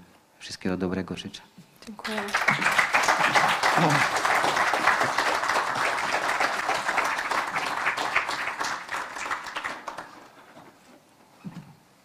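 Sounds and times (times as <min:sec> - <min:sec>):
audience applauding: 0:02.0 - 0:10.5.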